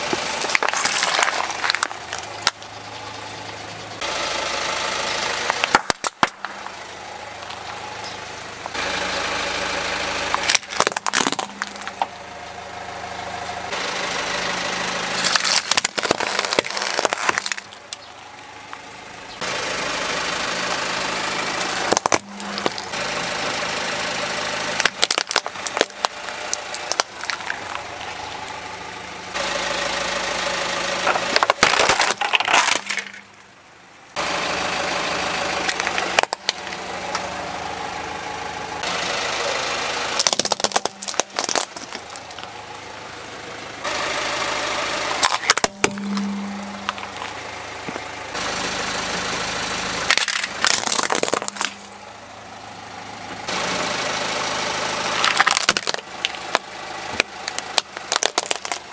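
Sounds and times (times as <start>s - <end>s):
plastic cracking under car tyre: 0.0s - 2.7s, 5.5s - 6.7s, 10.3s - 12.1s, 15.2s - 18.1s, 21.6s - 22.9s, 24.8s - 28.1s, 31.1s - 33.2s, 35.7s - 36.8s, 40.2s - 42.5s, 45.2s - 46.3s, 50.1s - 51.9s, 55.1s - 58.9s
car engine idling: 0.0s - 58.9s.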